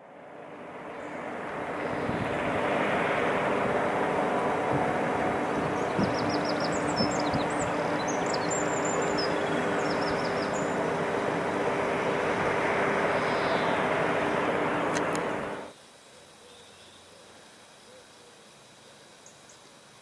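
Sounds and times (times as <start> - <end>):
industrial roar and hum: 0.0 - 15.7
small birds chirping: 0.8 - 2.6, 4.7 - 15.2.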